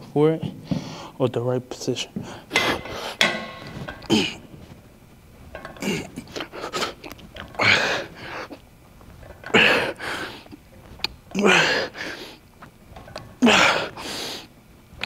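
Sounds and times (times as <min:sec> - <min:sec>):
man grunting breathily: 0:11.3 - 0:12.1, 0:13.4 - 0:14.0.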